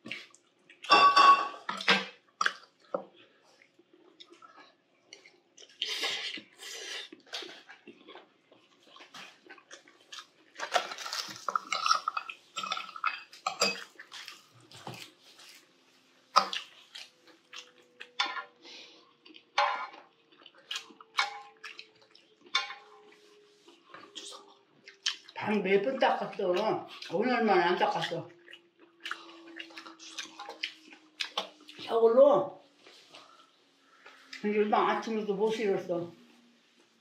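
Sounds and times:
person slurping and chewing: 2.4s - 22.5s, 28.4s - 31.9s.

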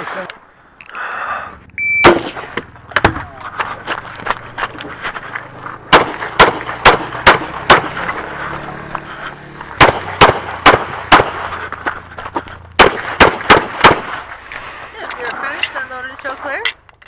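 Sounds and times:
pistol shots: 2.0s - 2.4s, 5.9s - 8.0s, 9.8s - 11.5s, 12.8s - 14.3s.

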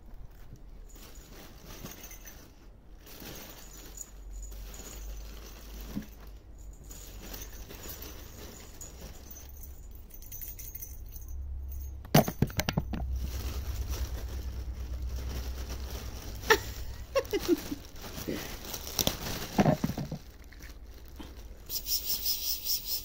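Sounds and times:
rustling of satin fabric: 0.1s - 10.0s, 12.8s - 21.8s
plastic balls tapping: 12.0s - 13.2s, 19.6s - 20.3s.

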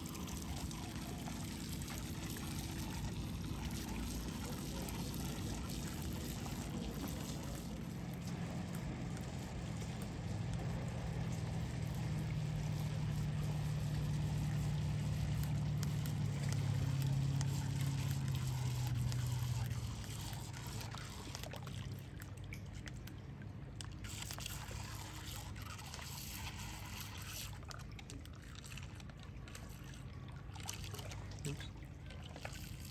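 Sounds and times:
lake water sloshing over rocks: 0.0s - 32.9s
small water splashes: 0.0s - 32.9s
steady low hum: 0.0s - 32.9s.

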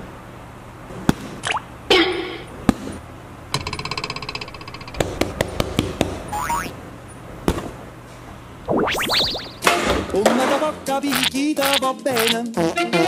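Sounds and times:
fast buzzing rattle: 3.5s - 5.4s
wobbling pitch glide: 3.6s - 5.4s, 8.7s - 9.7s
sharp knocks: 3.6s - 6.6s
cartoon boing: 6.3s - 6.7s, 8.7s - 9.7s.

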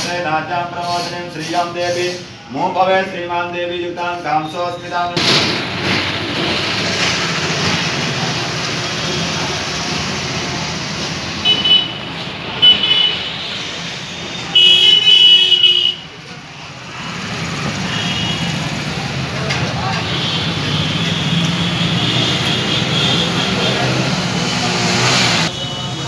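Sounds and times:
street traffic noise: 0.0s - 26.0s
vehicle horns honking: 11.4s - 13.5s, 14.2s - 16.2s, 17.8s - 18.7s, 19.9s - 24.2s, 25.1s - 26.0s.

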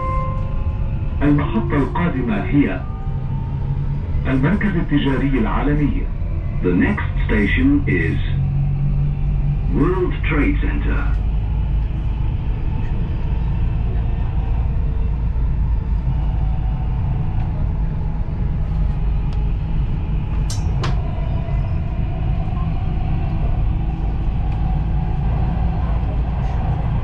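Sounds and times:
train rumbling inside car: 0.0s - 27.0s.

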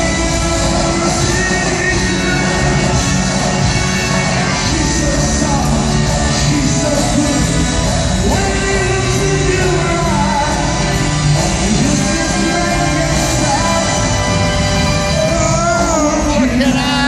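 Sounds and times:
live rock band: 0.0s - 17.0s
male lead vocal singing: 0.0s - 17.0s.

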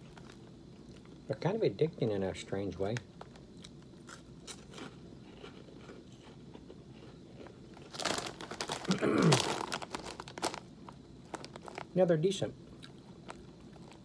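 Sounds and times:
snack bag crinkling: 0.0s - 1.2s, 2.8s - 14.0s
cheese puff crunching: 2.9s - 12.1s, 12.7s - 14.0s.

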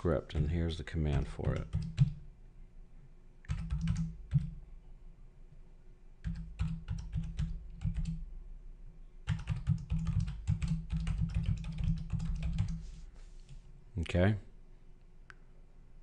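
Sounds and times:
computer keyboard typing: 1.1s - 2.2s, 3.5s - 4.6s, 6.2s - 8.2s, 9.3s - 12.8s.

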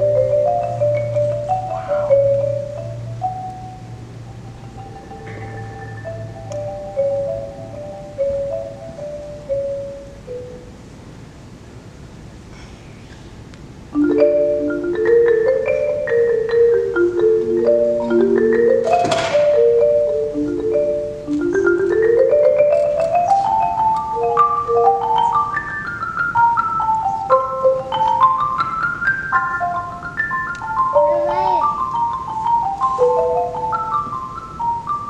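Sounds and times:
marimba runs: 0.0s - 10.9s, 13.9s - 35.0s
sharp noisy hit: 19.0s - 19.6s.

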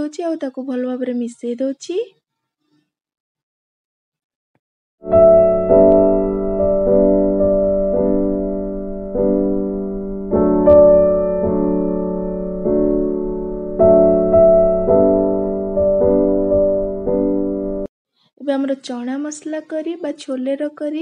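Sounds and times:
piano chords: 5.0s - 17.9s.

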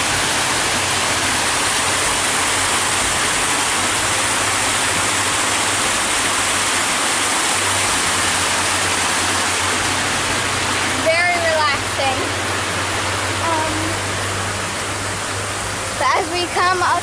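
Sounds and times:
water rushing down stone waterfall: 0.0s - 17.0s.

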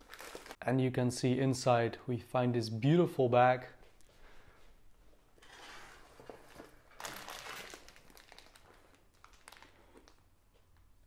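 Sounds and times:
bag rustling and crinkling: 0.0s - 0.6s, 5.4s - 10.3s.

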